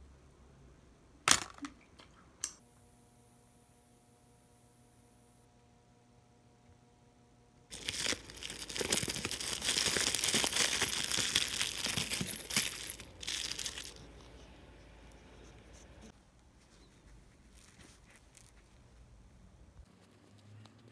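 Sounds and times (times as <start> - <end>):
plastic bubble mailer crinkling: 7.7 - 14.0.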